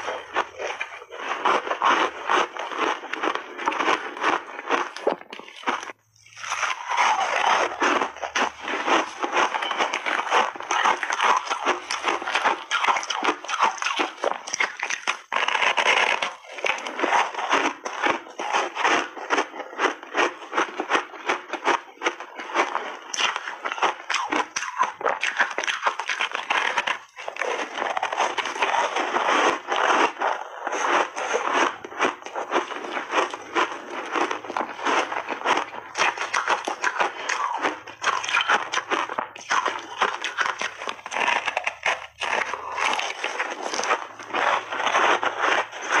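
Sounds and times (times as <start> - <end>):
crunching and chewing ice: 0.0 - 46.0.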